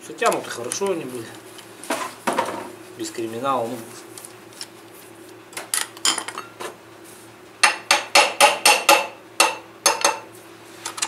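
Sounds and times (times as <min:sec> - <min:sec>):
tool tapping on steel: 0:07.6 - 0:10.3.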